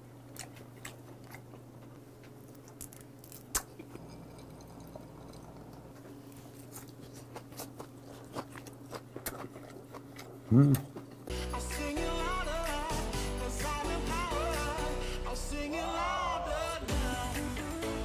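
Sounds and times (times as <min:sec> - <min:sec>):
chewing with mouth smacks: 0:00.2 - 0:11.3
sipping and swallowing: 0:03.6 - 0:11.2.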